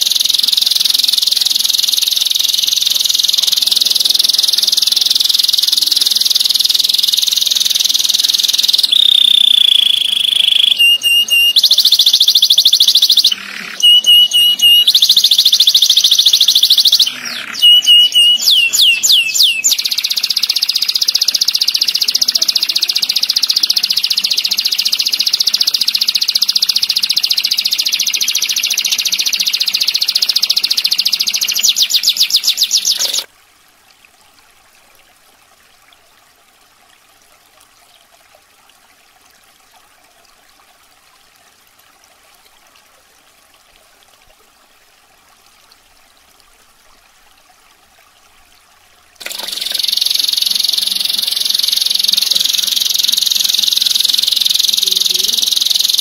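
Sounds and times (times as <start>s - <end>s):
canary trilling: 0.0s - 33.3s, 49.2s - 56.0s.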